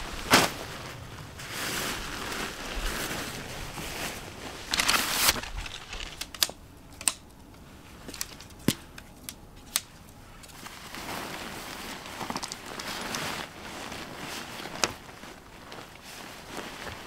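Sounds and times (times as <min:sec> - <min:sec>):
tent fabric rustling: 0:00.0 - 0:06.4, 0:10.2 - 0:17.0.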